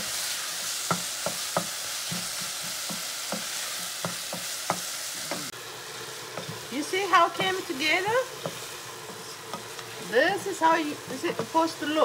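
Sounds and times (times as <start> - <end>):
sauce sizzling: 0.0 - 12.0
wooden spoon scraping a pan: 6.2 - 12.0.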